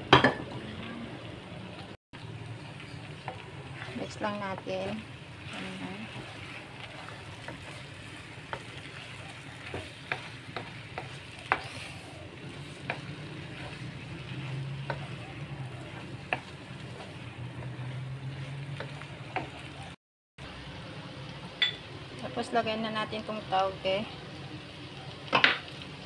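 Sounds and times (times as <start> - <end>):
food sizzling in a pan: 0.0 - 26.0
spatula clacking against pan: 6.1 - 11.7, 12.6 - 17.0.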